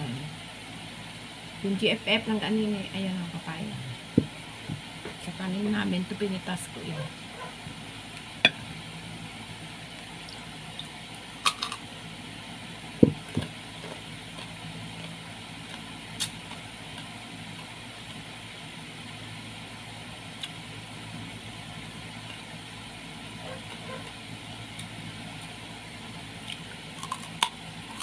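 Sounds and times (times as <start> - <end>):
steady low hum: 0.0 - 28.0
person chewing with mouth sounds: 26.4 - 28.0.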